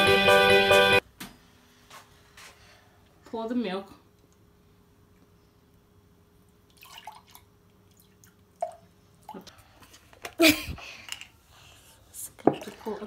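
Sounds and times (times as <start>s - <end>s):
milk pouring into a jug: 6.7s - 9.4s.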